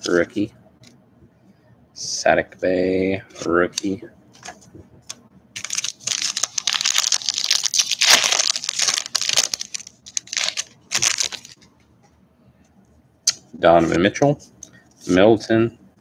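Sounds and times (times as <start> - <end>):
foil wrapper crinkling and tearing: 5.6 - 11.6.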